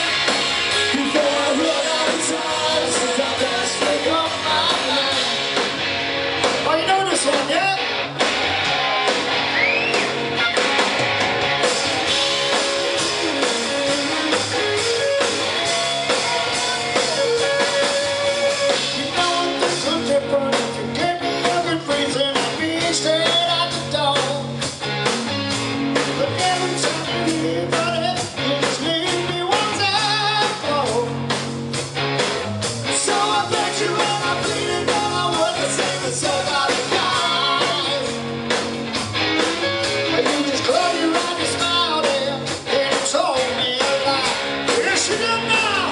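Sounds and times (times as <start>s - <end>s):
lead singer singing: 0.0s - 5.6s, 12.3s - 24.6s, 26.0s - 31.2s, 32.9s - 38.2s, 39.9s - 45.9s
drums: 0.0s - 45.9s
electric guitars: 0.0s - 45.9s.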